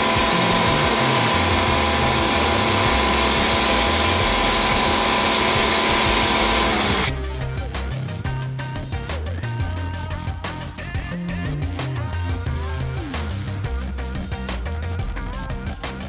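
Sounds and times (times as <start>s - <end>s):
foam spray hissing: 0.0s - 7.1s
pressure washer motor whine: 0.0s - 7.1s.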